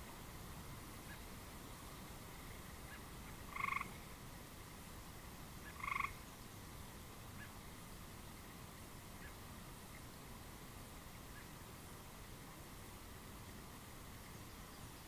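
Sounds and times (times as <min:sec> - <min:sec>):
frog croaking: 0:02.9 - 0:04.0, 0:05.6 - 0:06.2.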